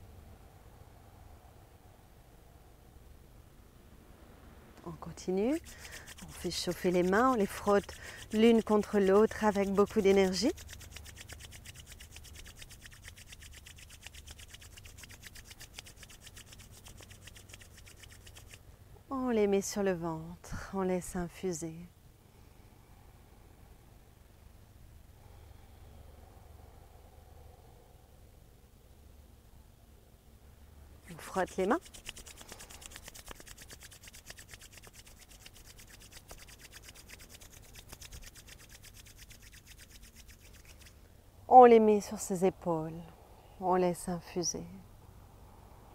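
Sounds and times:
hands rubbing together: 5.2 - 18.6, 31.1 - 41.0.

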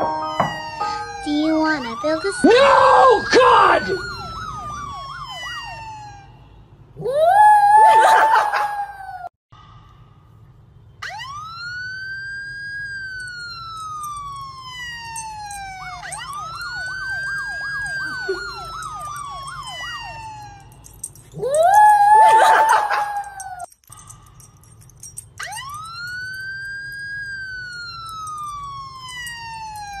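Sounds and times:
siren wailing: 0.0 - 9.2, 11.0 - 23.7, 25.1 - 30.0
dog howling: 21.3 - 23.7.

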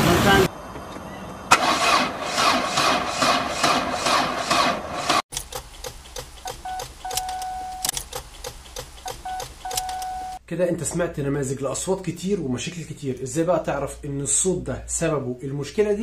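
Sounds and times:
car engine cranking: 1.5 - 10.4
ignition key clicks: 5.3 - 10.3
short beep: 6.6 - 7.9, 9.1 - 10.4.

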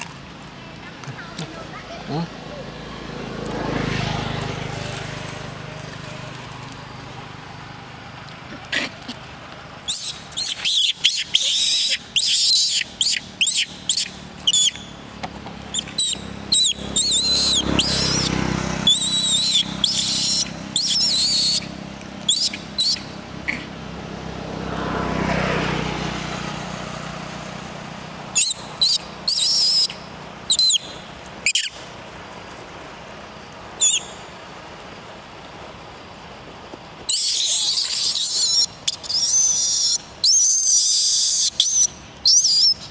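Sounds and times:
vehicle passing: 0.0 - 36.5
monkeys squealing: 9.9 - 14.9, 15.7 - 21.7, 22.3 - 23.8, 28.3 - 31.8, 37.1 - 42.9.

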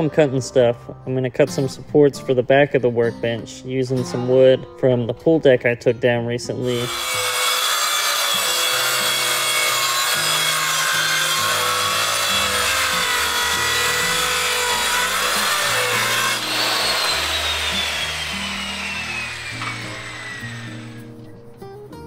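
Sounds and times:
circular saw cutting wood: 6.6 - 21.2.

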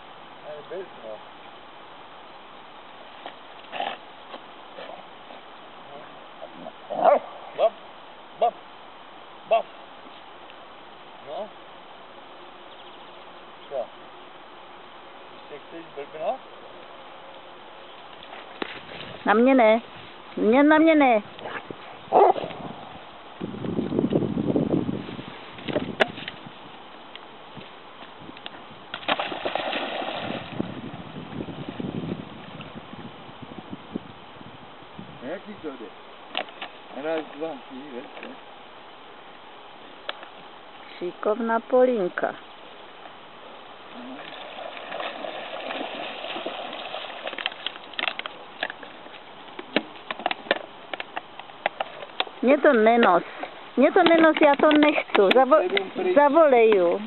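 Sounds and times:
dog splashing in water: 29.0 - 30.8, 44.1 - 48.1.

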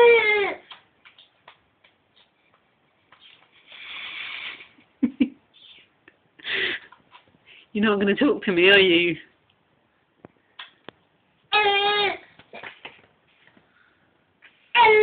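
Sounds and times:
baby breathy hiss: 3.6 - 4.7.

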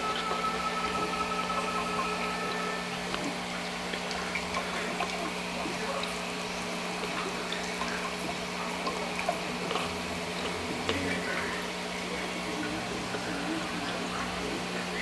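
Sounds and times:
low motor hum: 0.0 - 15.0
water trickling and bubbling: 0.0 - 15.0
water drips and splashes: 3.0 - 14.5.

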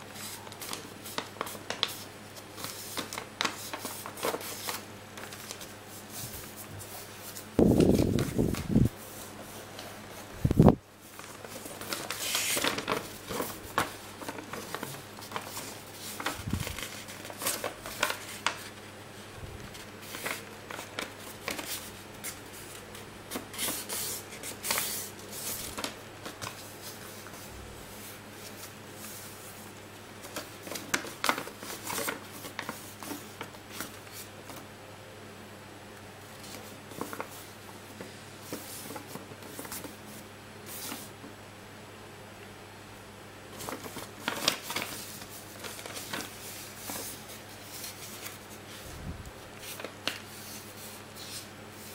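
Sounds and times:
paper rustling and crinkling: 0.1 - 18.9, 19.6 - 34.6, 36.3 - 41.2, 43.5 - 51.9.

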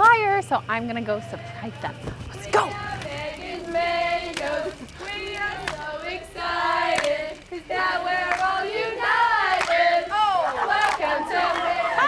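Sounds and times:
girls singing together: 1.2 - 12.0
hand claps: 6.9 - 7.4, 8.2 - 8.6, 9.4 - 9.8, 10.8 - 11.8.

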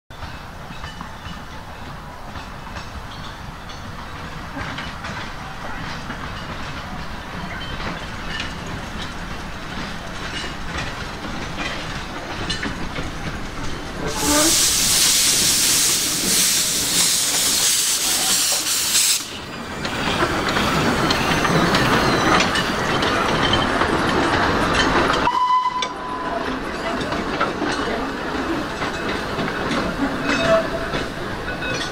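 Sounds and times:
steam locomotive running: 0.1 - 31.9
wagons clattering on rails: 0.1 - 31.9
loud hiss of escaping steam: 13.9 - 21.8.

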